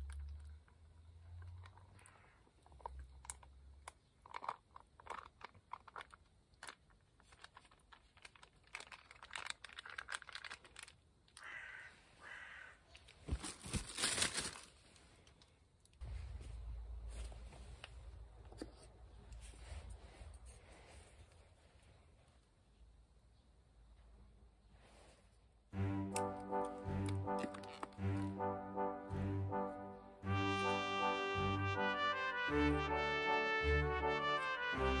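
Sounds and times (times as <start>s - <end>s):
food pouch crinkling: 2.8s - 11.5s, 13.0s - 14.8s, 26.9s - 28.4s.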